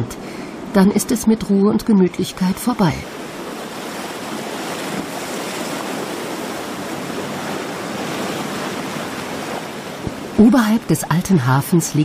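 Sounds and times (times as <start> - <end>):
sea surf washing against blocks: 2.2 - 11.0.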